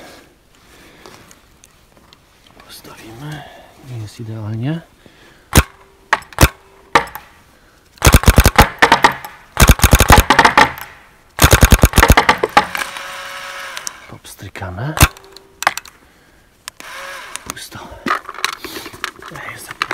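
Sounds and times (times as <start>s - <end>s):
paintball marker rapid shots: 8.0s - 12.8s.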